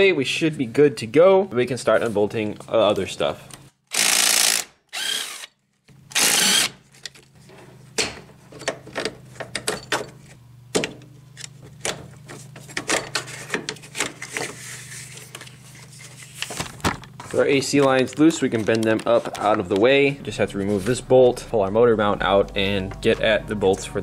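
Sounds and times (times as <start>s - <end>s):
cordless drill running: 3.9s - 5.5s, 6.1s - 6.8s
low steady hum: 19.5s - 24.0s.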